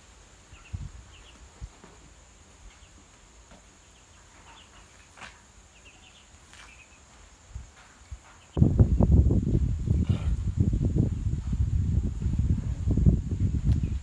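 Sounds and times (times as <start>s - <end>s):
ducklings peeping: 0.5s - 1.8s, 3.8s - 7.2s.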